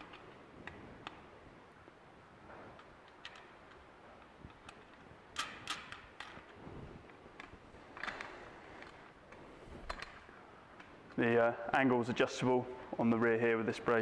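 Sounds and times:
light metal clicks and taps: 0:02.7 - 0:06.5.

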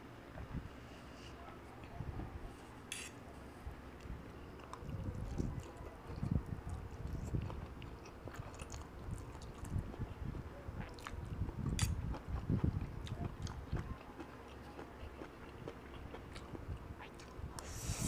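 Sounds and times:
person chewing noodles: 0:07.0 - 0:09.8, 0:10.8 - 0:18.0.

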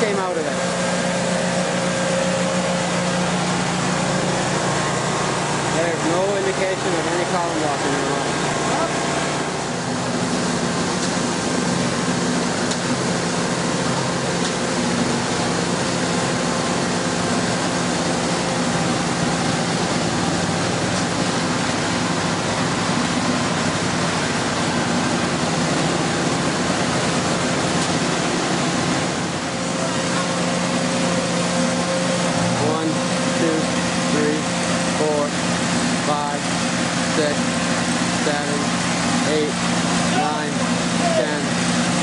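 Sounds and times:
engine hum: 0:00.0 - 0:42.0.

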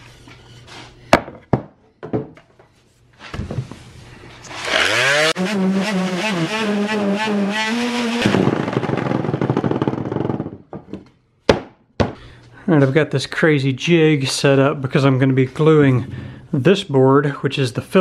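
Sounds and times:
electric palm sander running: 0:04.5 - 0:09.5.

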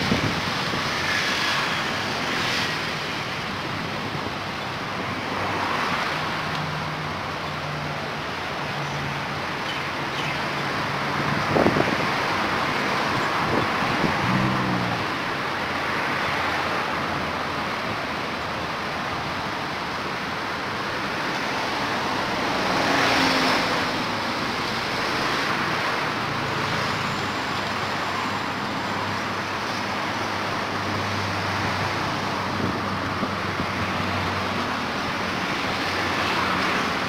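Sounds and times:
road traffic noise: 0:00.0 - 0:37.0
vehicle passing: 0:13.4 - 0:15.2.

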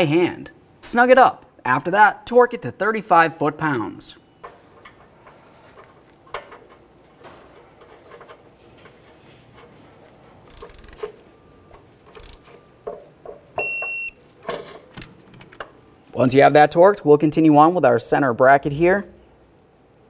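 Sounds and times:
wrench and socket clicks: 0:10.5 - 0:11.1
high electronic beep: 0:13.6 - 0:14.2.

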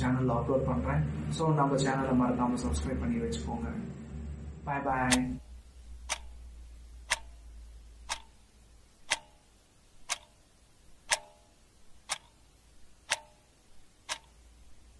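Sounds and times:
low hum: 0:00.0 - 0:08.8
clock ticking: 0:05.0 - 0:14.9.

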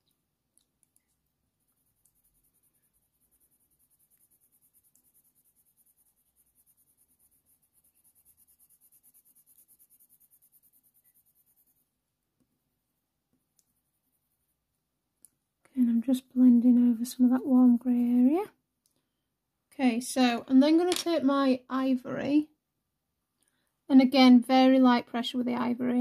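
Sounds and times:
pencil scratching on paper: 0:01.0 - 0:12.0, 0:13.6 - 0:14.7.

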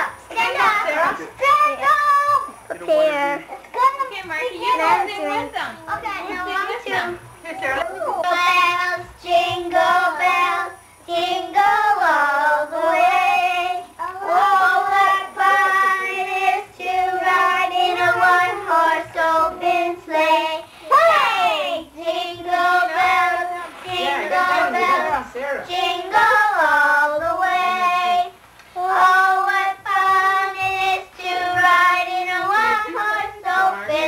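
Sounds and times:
children singing together: 0:08.2 - 0:34.0.

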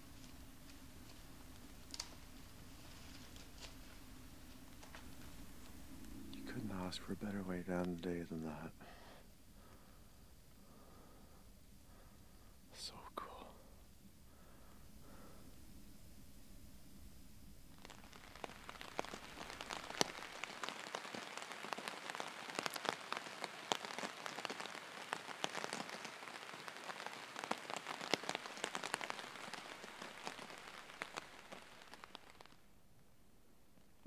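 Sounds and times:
heavy rain falling: 0:00.0 - 0:09.9, 0:17.7 - 0:32.9.

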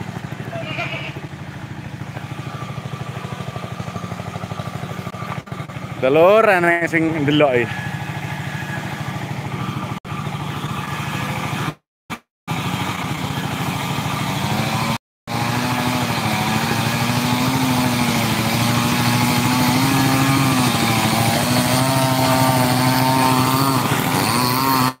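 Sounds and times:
engine running steadily: 0:00.0 - 0:25.0.

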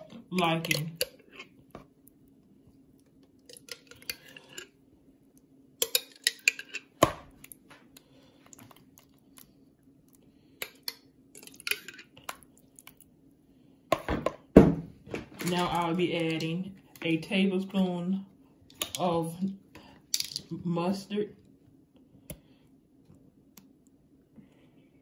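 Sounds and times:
spoon scraping against bowl: 0:03.5 - 0:04.7, 0:05.8 - 0:07.0
spoon clattering: 0:05.8 - 0:06.9.

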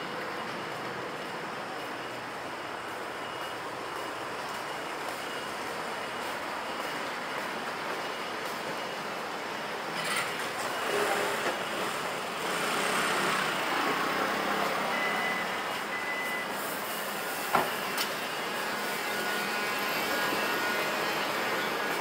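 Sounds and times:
scooter and car engines: 0:09.4 - 0:22.0
short high beeps: 0:14.8 - 0:16.6.

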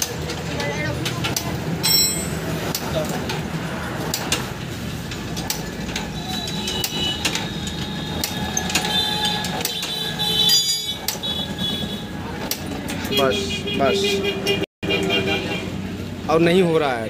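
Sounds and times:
regular mechanical clicks: 0:00.0 - 0:13.2.

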